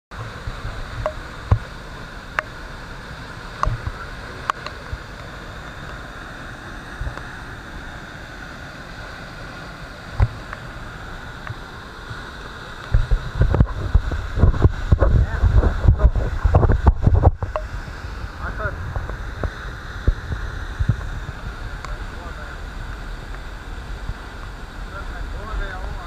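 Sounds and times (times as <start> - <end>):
waterfall rushing: 0.1 - 26.0
clicks and bumps on microphone: 12.9 - 17.7.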